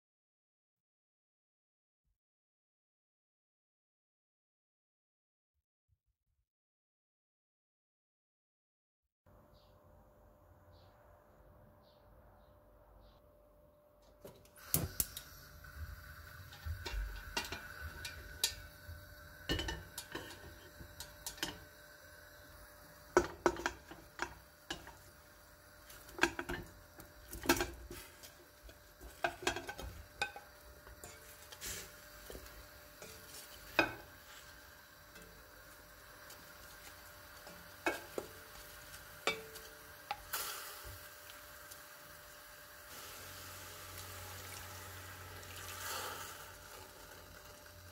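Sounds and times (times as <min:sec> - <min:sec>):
gas burner lighting: 0:14.2 - 0:47.9
metal cookware clanking: 0:16.2 - 0:21.8, 0:23.1 - 0:25.1, 0:25.9 - 0:34.2, 0:37.3 - 0:40.4.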